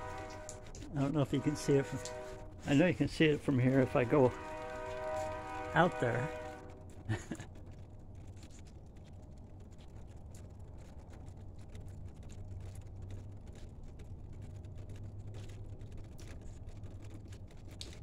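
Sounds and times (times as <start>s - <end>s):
distant train rumble: 0.0s - 18.0s.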